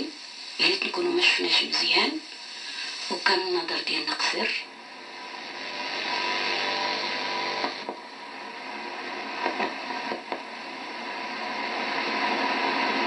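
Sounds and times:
steady hiss of noise: 0:00.0 - 0:13.0.

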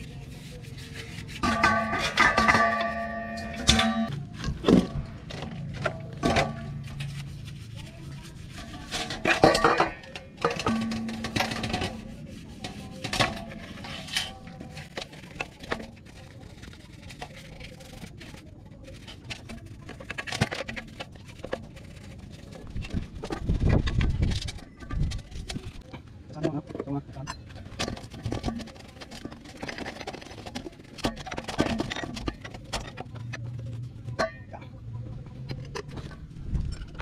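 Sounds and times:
brush scrubbing metal part: 0:00.0 - 0:04.1, 0:06.2 - 0:23.3.

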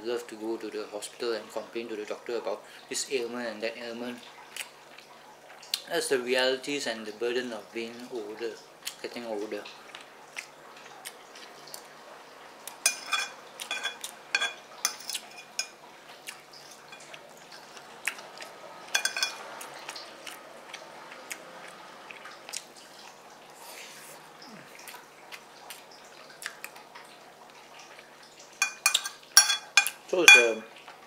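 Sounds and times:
metal spoon scraping ceramic bowl: 0:12.9 - 0:15.8, 0:19.0 - 0:19.4, 0:28.6 - 0:30.5.

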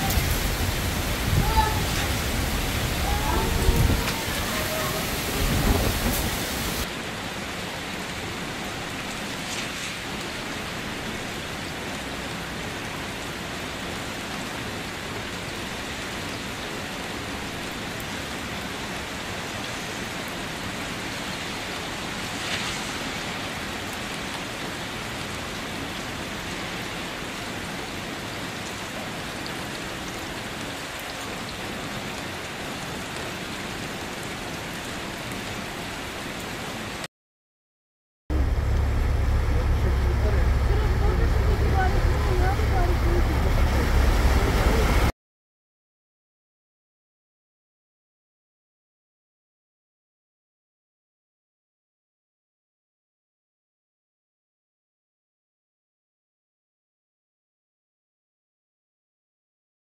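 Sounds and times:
heavy rain falling: 0:00.0 - 0:37.1, 0:38.3 - 0:45.1
low rumble: 0:38.3 - 0:45.1.

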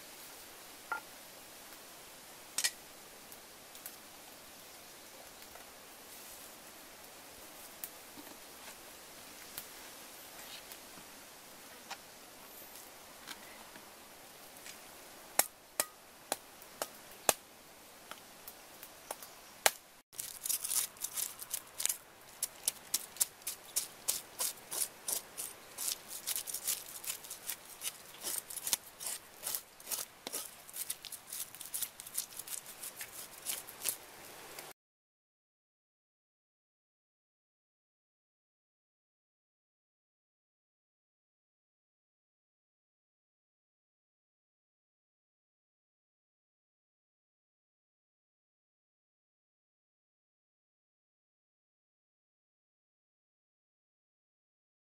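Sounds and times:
cleaver scraping fish scales: 0:20.2 - 0:34.1.

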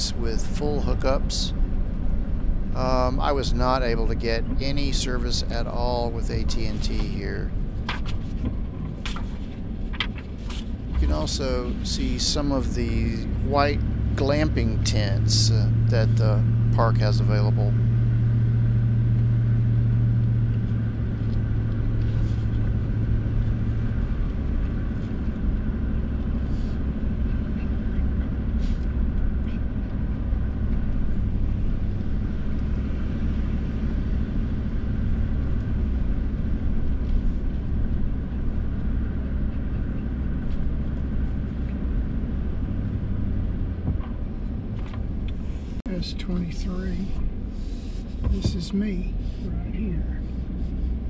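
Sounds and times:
vehicle engine and tyre noise: 0:00.0 - 0:51.0.

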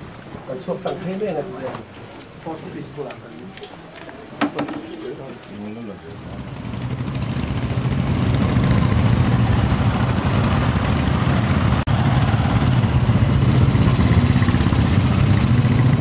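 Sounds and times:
motorcycles riding past: 0:06.1 - 0:16.0.

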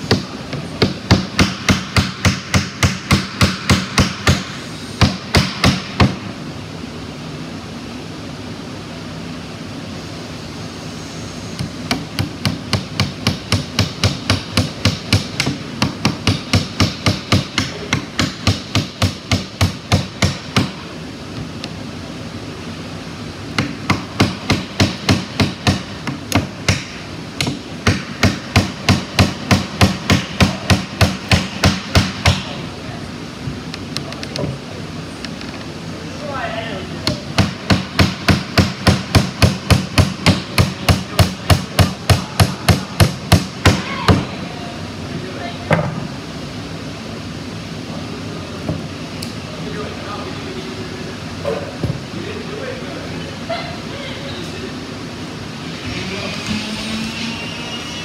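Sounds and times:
steady low hum: 0:00.0 - 0:58.0
hammer driving nails into wood: 0:23.6 - 0:32.5.

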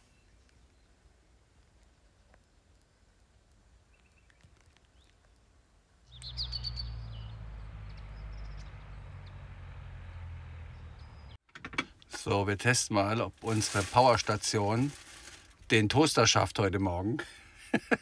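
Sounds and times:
birds chirping: 0:03.8 - 0:11.4.

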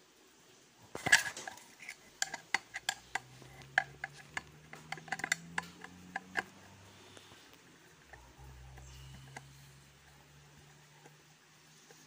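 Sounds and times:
screwdriver clicking in screw: 0:01.1 - 0:06.5.

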